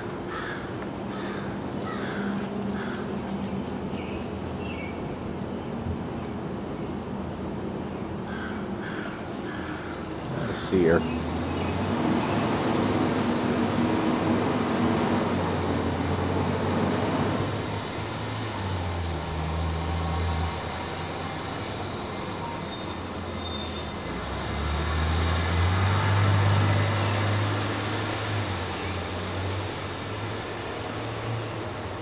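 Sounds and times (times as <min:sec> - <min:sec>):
low mechanical rumble with hiss: 0:00.0 - 0:22.4.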